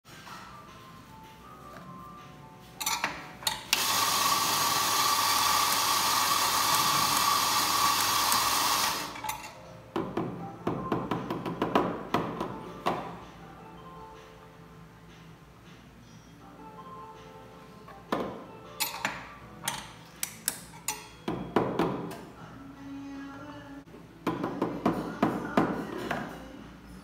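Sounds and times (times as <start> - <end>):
electric coffee grinder whirring: 3.8 - 9.3.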